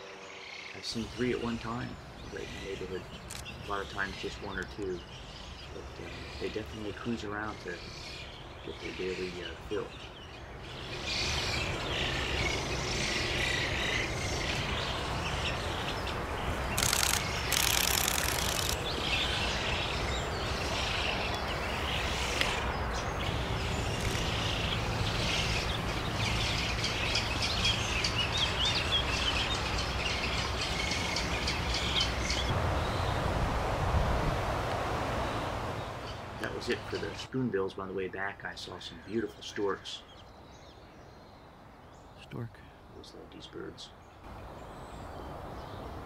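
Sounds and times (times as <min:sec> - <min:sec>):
birds high chirping calls: 0:00.0 - 0:33.3, 0:35.0 - 0:46.0
short rush of noise: 0:16.8 - 0:18.9.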